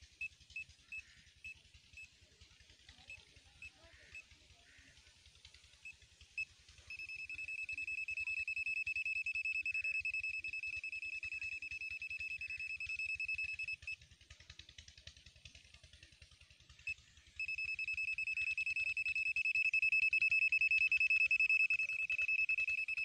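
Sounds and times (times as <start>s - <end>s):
multimeter beeping: 6.9s - 14.0s, 17.4s - 23.0s.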